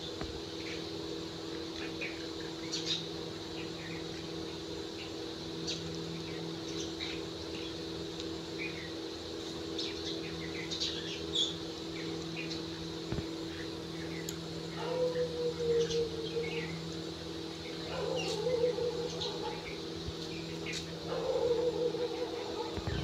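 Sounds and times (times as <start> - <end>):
steady low hum: 0.0 - 23.0
bird chirps and calls: 14.0 - 16.8, 17.6 - 19.8.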